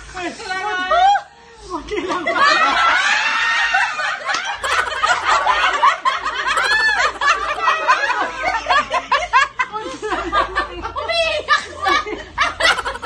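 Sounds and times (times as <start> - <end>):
group of people laughing: 2.3 - 10.9, 11.6 - 13.0
high squeal of laughter: 4.6 - 5.8, 6.6 - 7.8, 12.6 - 13.0.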